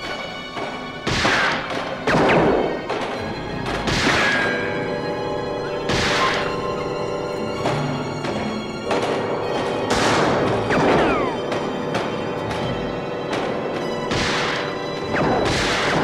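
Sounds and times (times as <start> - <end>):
dramatic film score: 0.0 - 16.0
loud bangs and crashes: 7.7 - 12.7, 13.3 - 16.0.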